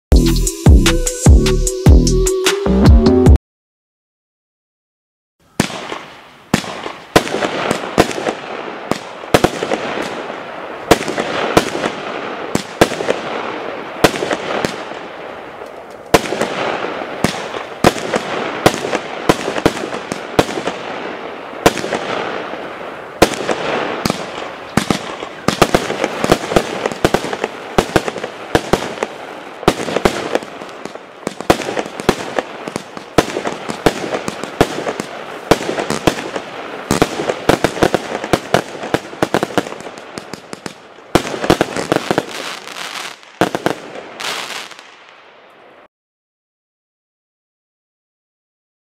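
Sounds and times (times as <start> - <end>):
firework bangs: 5.5 - 45.4
firework hiss: 44.2 - 44.9.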